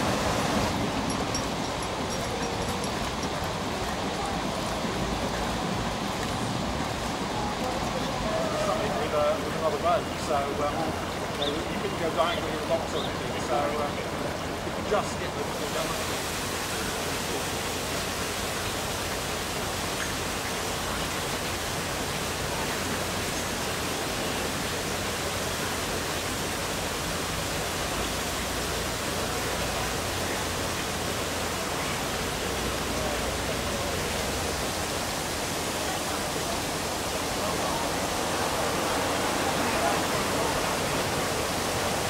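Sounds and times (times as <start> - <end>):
water rushing at lock: 0.0 - 42.0.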